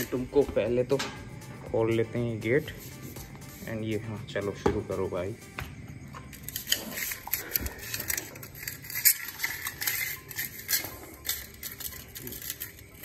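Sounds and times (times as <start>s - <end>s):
steel plate scraping on tiles: 6.3s - 13.0s.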